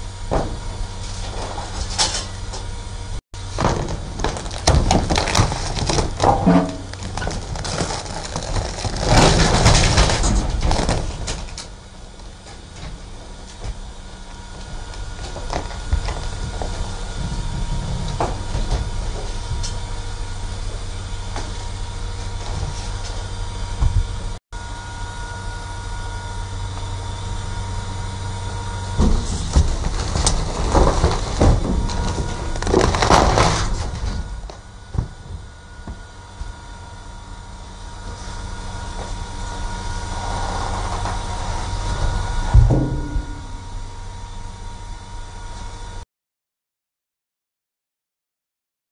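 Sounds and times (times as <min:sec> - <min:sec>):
garbage truck packer rumble: 0:00.0 - 0:46.0
steady whine: 0:00.0 - 0:46.0
wooden frame cracking: 0:03.6 - 0:11.5, 0:29.6 - 0:34.0.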